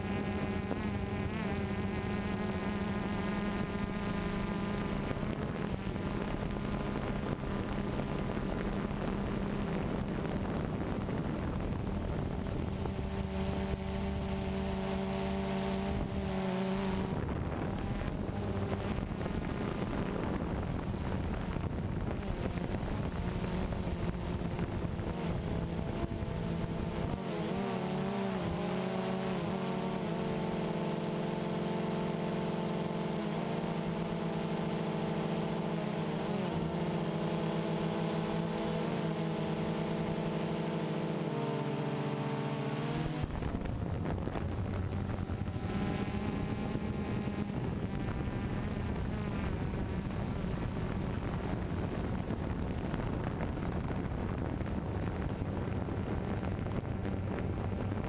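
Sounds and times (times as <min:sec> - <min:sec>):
drone propellers buzzing: 0:00.0 - 0:58.0.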